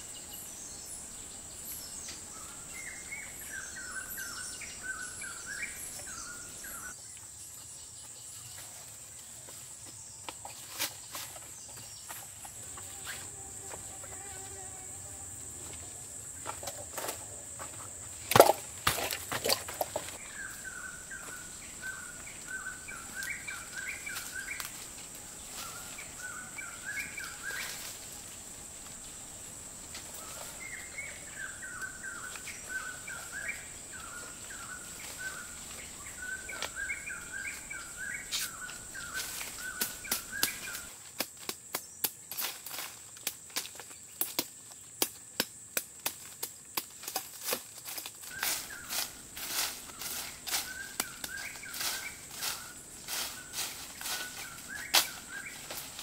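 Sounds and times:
bird calls: 0:00.0 - 0:07.0, 0:19.4 - 0:28.0, 0:30.0 - 0:40.9, 0:48.2 - 0:56.0
high insect drone: 0:00.0 - 0:56.0.

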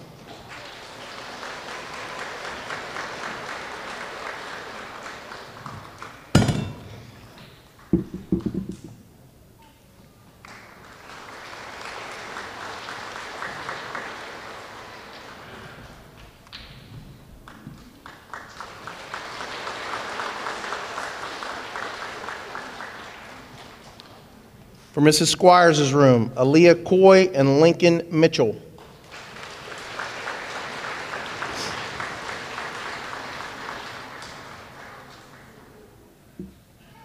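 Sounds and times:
audience applauding: 0:00.0 - 0:06.4, 0:10.4 - 0:16.6, 0:17.4 - 0:24.0, 0:28.8 - 0:35.9
loud thump: 0:06.4 - 0:07.1, 0:08.0 - 0:09.0.

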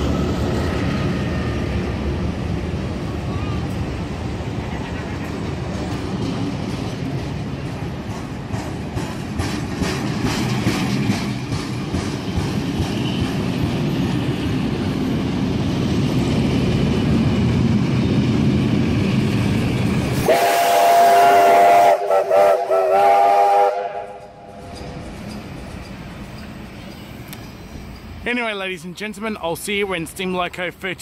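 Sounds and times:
train carriages rumbling and clicking: 0:00.0 - 0:31.0
steam locomotive chime whistle: 0:20.2 - 0:24.5.

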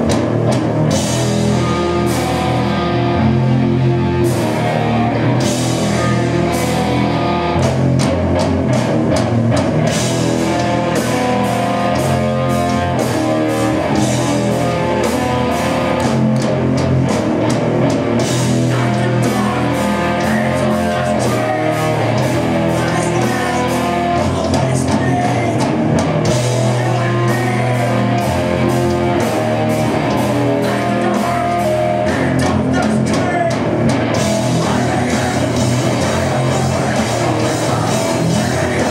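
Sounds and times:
drum kit and cymbals: 0:00.0 - 0:38.9
electric guitar: 0:00.0 - 0:38.9.

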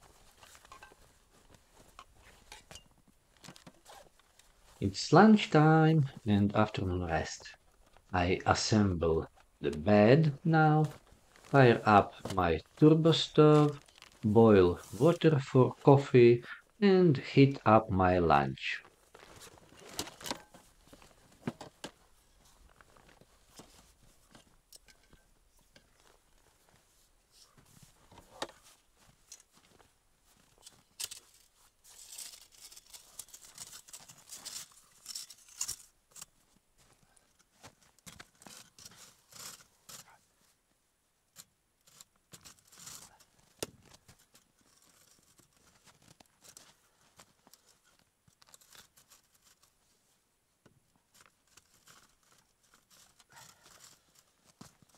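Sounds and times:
fabric rustling: 0:10.8 - 0:15.1, 0:18.9 - 0:40.6.

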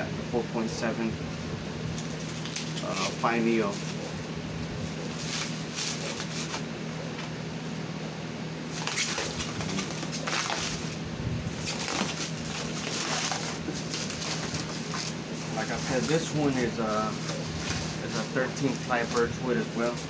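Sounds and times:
plastic wrap crinkling: 0:01.9 - 0:04.2, 0:08.7 - 0:20.0.

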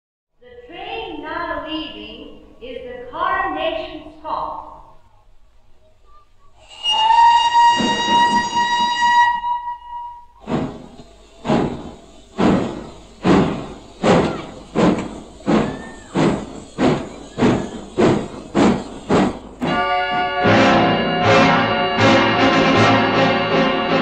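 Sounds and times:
locomotive exhaust chuffs: 0:06.2 - 0:24.0
steam whistle blast: 0:06.6 - 0:18.2, 0:19.6 - 0:24.0.

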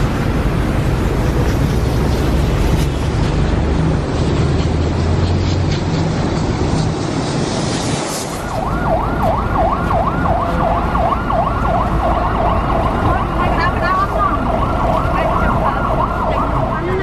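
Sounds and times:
low rumble of traffic: 0:00.0 - 0:17.0
warbling siren tone: 0:08.0 - 0:17.0.

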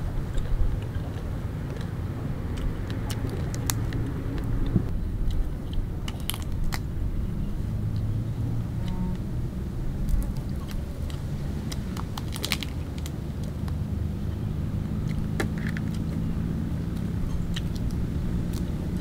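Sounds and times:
low hum: 0:00.0 - 0:19.0
shrimp shell cracking: 0:06.1 - 0:06.9, 0:10.1 - 0:13.8.

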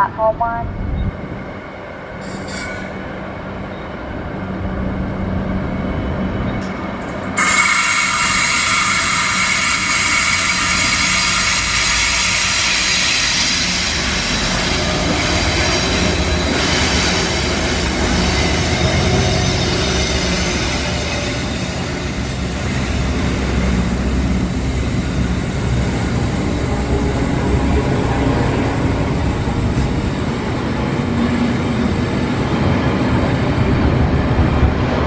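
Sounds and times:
diesel locomotive engine noise: 0:00.0 - 0:35.0
high metallic squeal: 0:02.2 - 0:03.0, 0:07.4 - 0:14.4.

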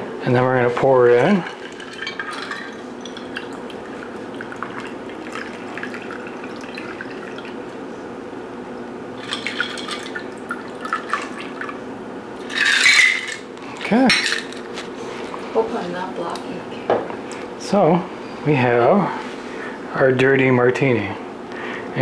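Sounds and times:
liquid trickling into a glass: 0:01.4 - 0:07.6, 0:09.2 - 0:11.8.

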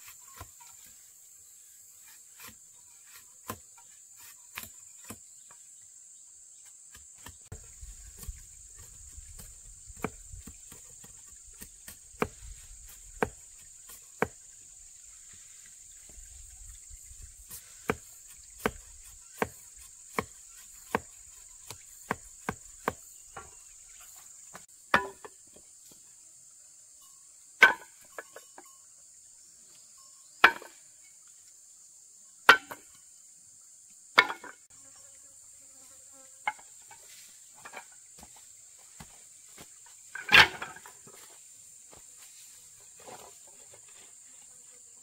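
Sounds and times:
forest insects chirring: 0:00.0 - 0:45.0
tool striking wood: 0:13.2 - 0:14.4, 0:17.9 - 0:23.6, 0:24.5 - 0:25.3.

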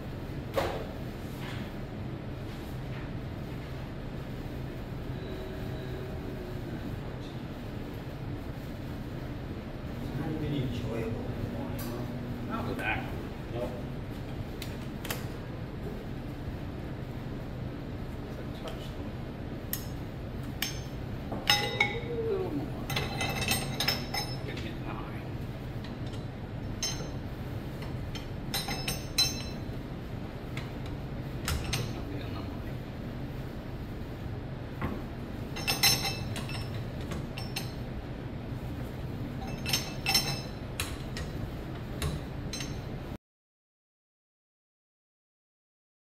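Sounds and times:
low steady hum: 0:00.0 - 0:43.2
metal tools clinking: 0:22.9 - 0:24.7, 0:26.7 - 0:27.2, 0:28.2 - 0:29.7, 0:35.5 - 0:37.8, 0:39.4 - 0:40.6
ratchet wrench metallic clinks: 0:39.4 - 0:40.5.

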